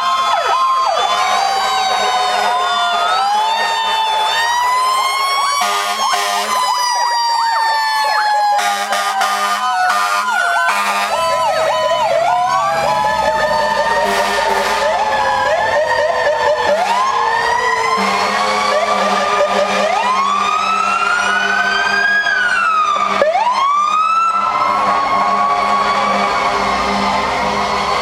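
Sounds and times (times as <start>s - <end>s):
sirens wailing and yelping: 0.0s - 28.0s
loud horn blasts: 5.6s - 6.7s, 8.6s - 11.4s, 14.0s - 15.0s, 18.0s - 20.0s.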